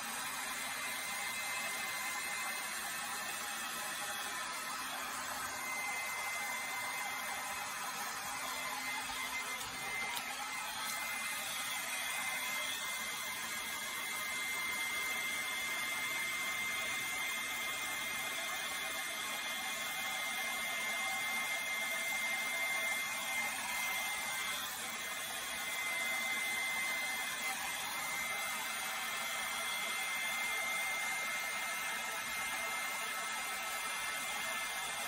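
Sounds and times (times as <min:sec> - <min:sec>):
hair dryer blowing air: 0:00.0 - 0:35.0.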